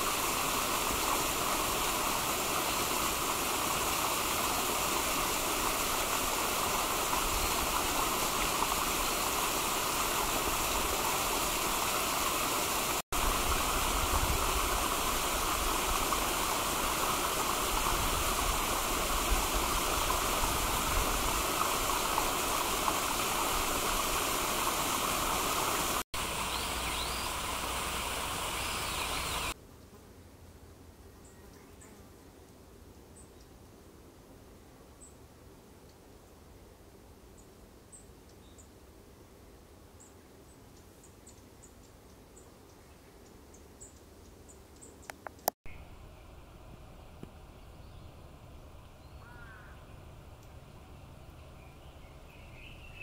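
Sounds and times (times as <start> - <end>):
stream water rushing: 0.0 - 29.6.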